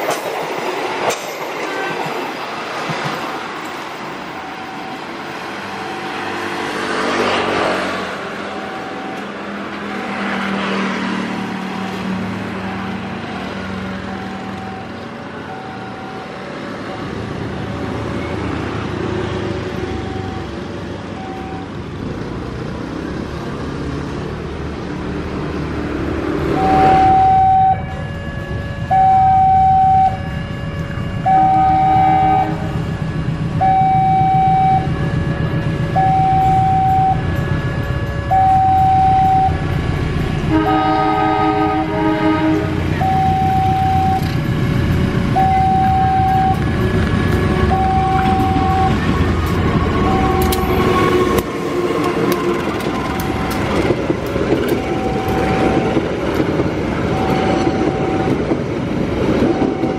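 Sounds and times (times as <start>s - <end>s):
diesel locomotive engine rumble: 0.0s - 59.9s
level crossing warning alarm: 3.6s - 6.5s, 8.1s - 10.7s, 11.8s - 18.6s, 19.4s - 21.9s, 26.4s - 39.8s, 40.5s - 59.9s.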